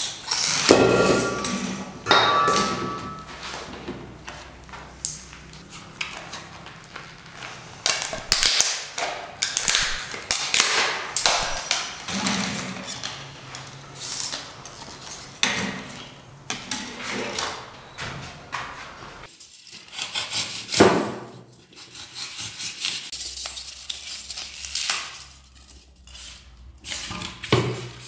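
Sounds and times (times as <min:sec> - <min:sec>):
plastic shards clattering: 0:09.4 - 0:12.2.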